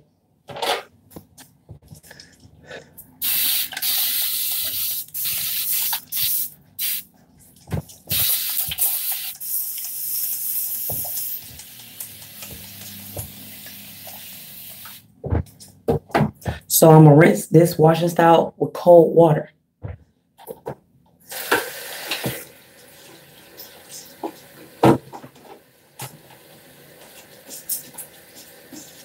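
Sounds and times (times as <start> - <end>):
spray bottle hissing: 3.2 - 7.0, 8.1 - 15.0.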